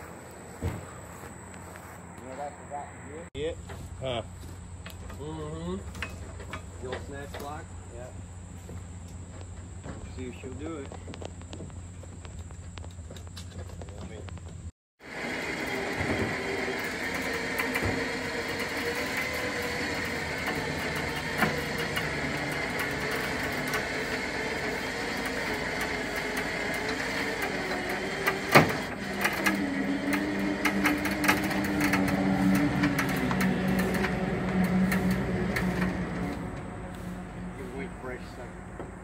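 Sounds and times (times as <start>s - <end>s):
creaks and clicks: 9.0s - 14.7s, 16.1s - 37.0s
electric winch motor running: 15.0s - 39.0s.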